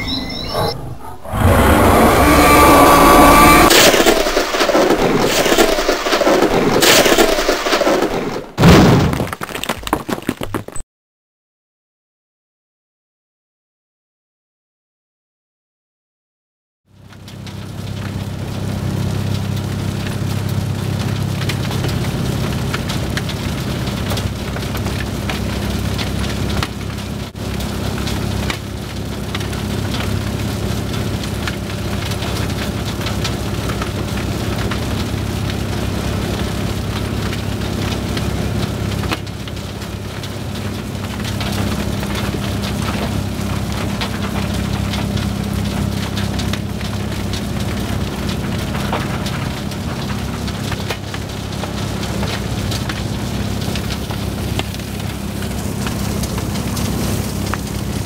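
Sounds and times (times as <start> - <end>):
crusher low drone: 0.0 - 8.6
stones clattering: 9.0 - 10.8.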